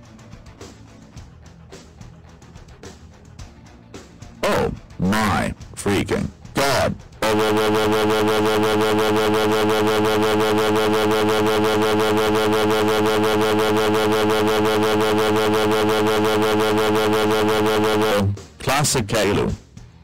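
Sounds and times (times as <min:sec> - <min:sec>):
synthetic voice buzzing cry: 0:04.4 - 0:05.4, 0:06.6 - 0:18.4.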